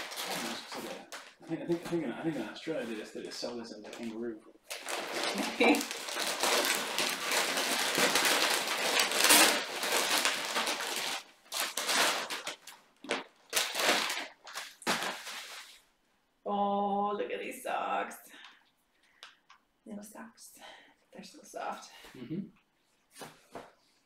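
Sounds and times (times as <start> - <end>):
paper and plastic bag crinkling: 0.0 - 15.8.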